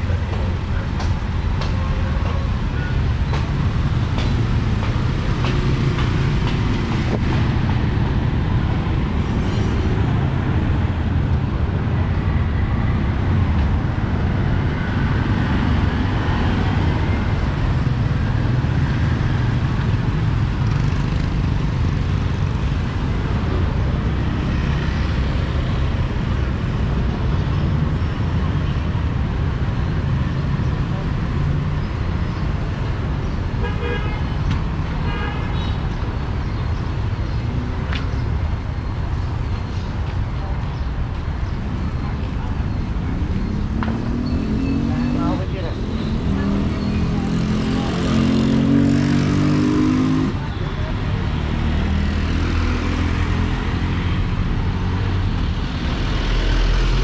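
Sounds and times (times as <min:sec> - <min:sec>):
street traffic rumble: 0:00.0 - 0:57.0.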